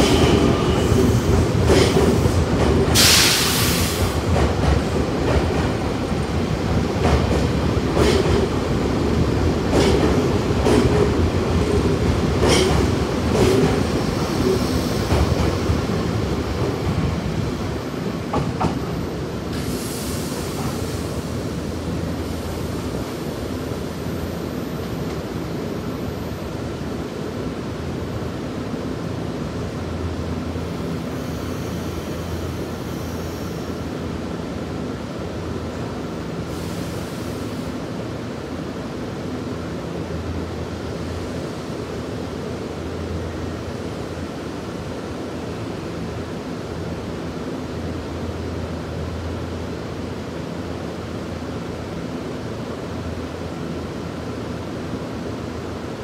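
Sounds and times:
short hiss: 3.0 - 4.2.

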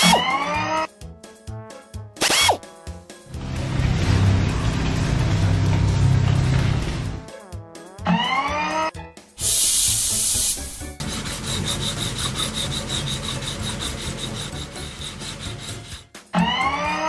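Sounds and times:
fast rasping strokes: 2.2 - 2.6, 10.5 - 16.1
hiss: 9.4 - 11.0.

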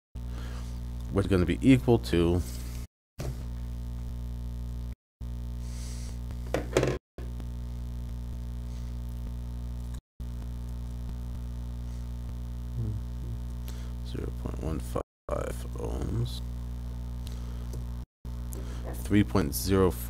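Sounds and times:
electrical mains hum: 0.2 - 20.0.

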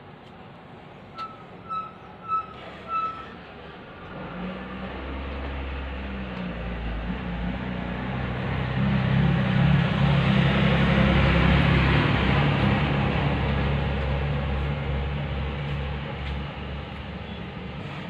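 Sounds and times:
low engine rumble: 0.0 - 18.0
short high beeps: 1.2 - 3.2.

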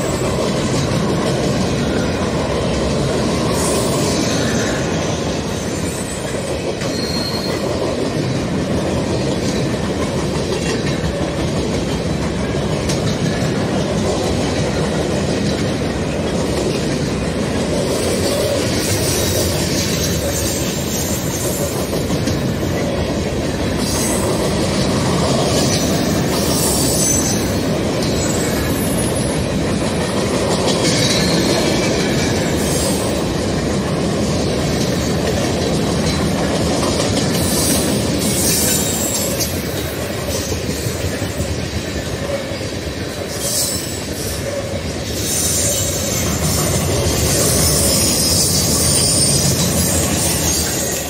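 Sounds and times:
train wheels rumbling on rail: 0.0 - 51.0
high-pitched wheel squeal: 5.5 - 7.6, 45.2 - 46.5, 47.3 - 51.0.

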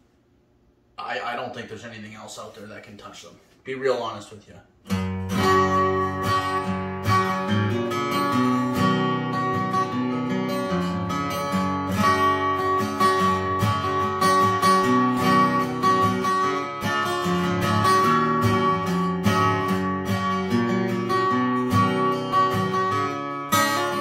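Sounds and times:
acoustic guitar chords: 4.8 - 24.0.

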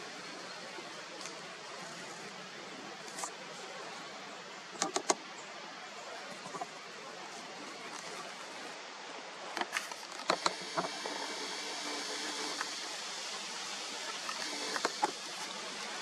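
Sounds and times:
steady hiss: 0.0 - 16.0
sharp clicks and snaps: 4.8 - 5.2.

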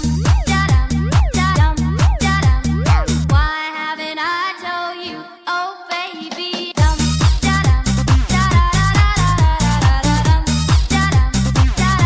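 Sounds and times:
electronic dance music: 0.0 - 3.7, 6.7 - 12.0.

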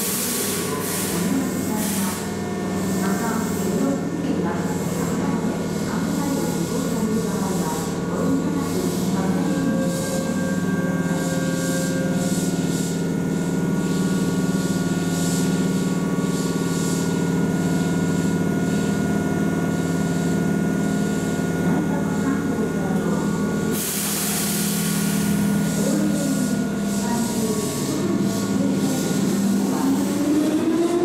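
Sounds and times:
air hiss: 0.0 - 2.3, 23.7 - 29.8
electric train humming: 0.0 - 16.3, 20.4 - 31.0.

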